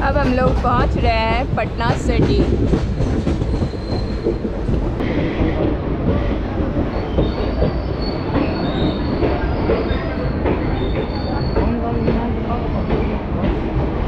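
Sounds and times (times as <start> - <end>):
train wheels rumbling on rails: 0.0 - 14.0
train wheels squealing: 3.0 - 4.6, 6.9 - 12.9.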